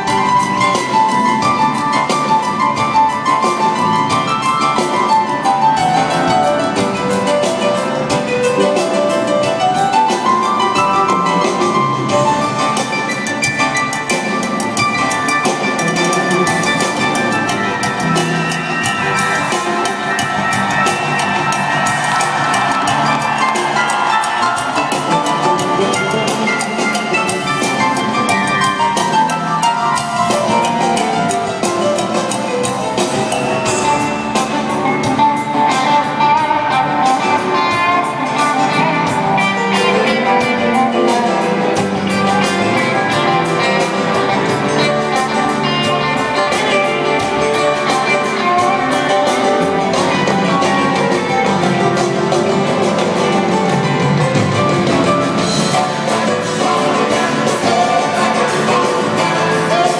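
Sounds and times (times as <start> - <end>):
drums: 0.0 - 59.9
electric guitar: 0.0 - 59.9
piano: 0.0 - 59.9.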